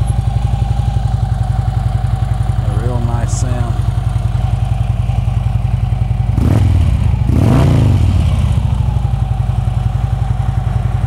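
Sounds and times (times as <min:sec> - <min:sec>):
motorcycle engine idling and revving: 0:00.0 - 0:11.0.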